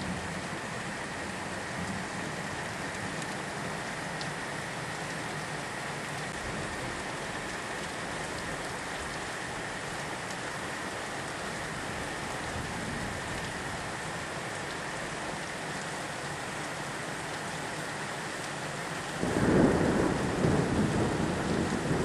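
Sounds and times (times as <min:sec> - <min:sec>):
steady rain hiss: 0:00.0 - 0:22.0
raindrop ticks: 0:01.9 - 0:04.4, 0:07.3 - 0:10.6, 0:13.3 - 0:13.6.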